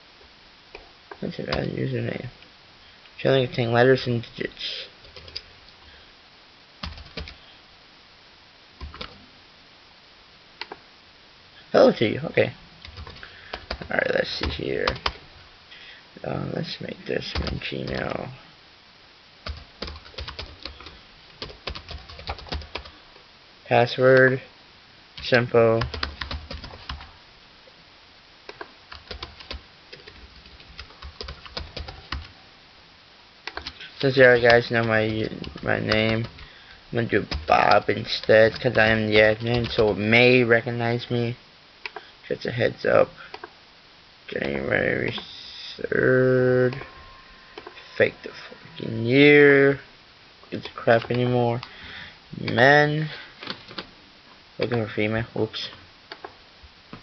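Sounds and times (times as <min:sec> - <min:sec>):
keyboard typing: 0:05.0 - 0:05.5, 0:06.8 - 0:07.4, 0:08.8 - 0:09.2, 0:12.8 - 0:15.2, 0:17.3 - 0:18.2, 0:19.4 - 0:22.9, 0:25.8 - 0:27.1, 0:28.5 - 0:32.3, 0:33.5 - 0:36.5, 0:37.2 - 0:40.0.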